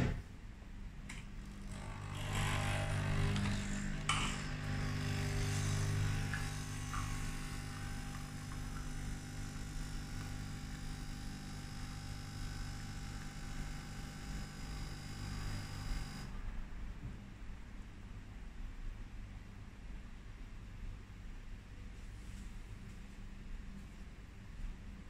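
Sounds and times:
coffee machine pump humming: 0:01.0 - 0:16.4
coffee running into cup: 0:03.2 - 0:11.6.

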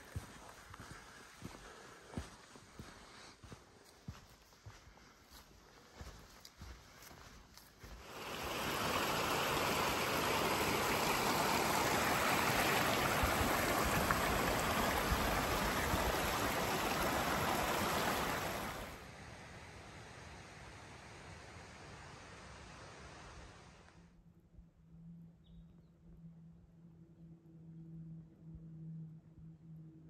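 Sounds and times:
stream running over stones: 0:08.0 - 0:19.0.

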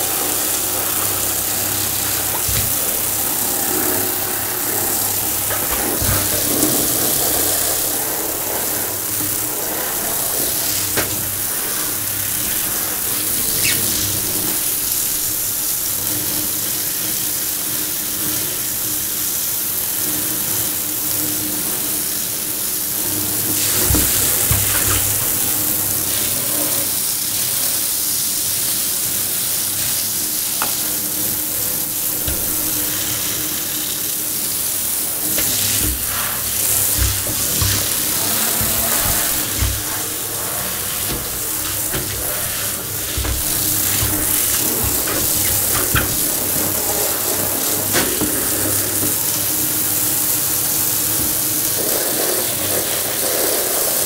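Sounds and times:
shower head spraying water: 0:00.0 - 0:17.3, 0:22.6 - 0:54.0
dull knocks: 0:02.0 - 0:03.4, 0:05.4 - 0:07.4, 0:23.7 - 0:25.6, 0:32.1 - 0:33.1, 0:35.3 - 0:47.0.

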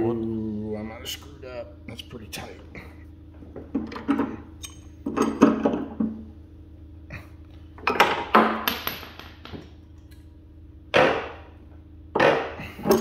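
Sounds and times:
pipe wrench clanking on metal: 0:03.8 - 0:06.0, 0:12.2 - 0:13.0.

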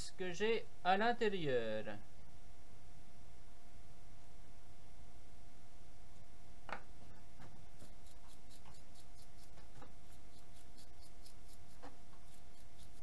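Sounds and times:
knife blade scratching metal: 0:07.8 - 0:13.0.

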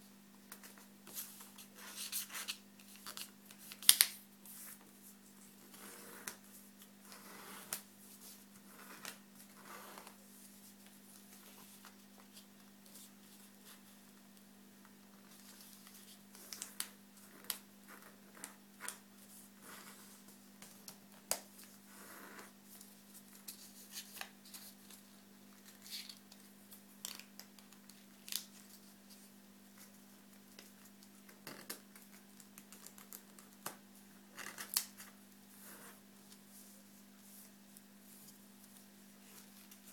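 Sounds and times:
paper folding and creasing: 0:00.6 - 0:04.8.

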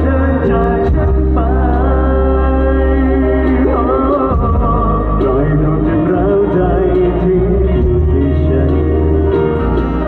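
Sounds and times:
heavy steady bass: 0:00.0 - 0:10.0
held melody line: 0:00.0 - 0:10.0
live band music through loudspeakers: 0:00.0 - 0:10.0.

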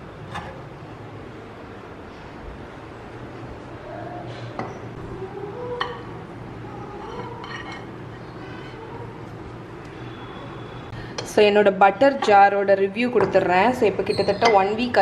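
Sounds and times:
ceramic dishes clinking: 0:07.0 - 0:08.0.

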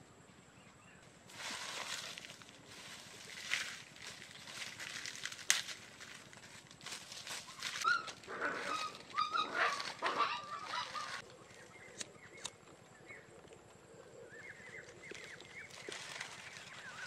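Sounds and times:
dry grass rustling and snapping: 0:01.3 - 0:12.8, 0:14.7 - 0:17.0
geese calling: 0:07.4 - 0:11.2.

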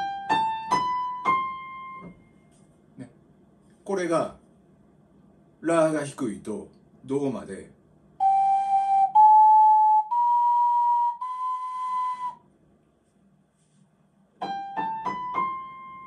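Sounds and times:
ocarina playing held notes: 0:08.2 - 0:12.4
piano playing rising notes: 0:14.4 - 0:16.0.

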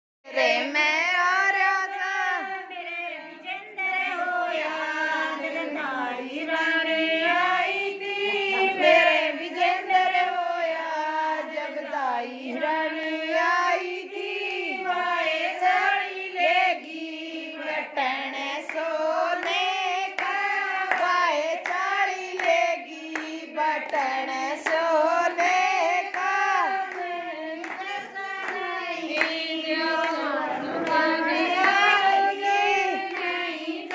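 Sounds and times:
women singing folk song: 0:00.3 - 0:33.9
hand clapping: 0:18.6 - 0:33.9.

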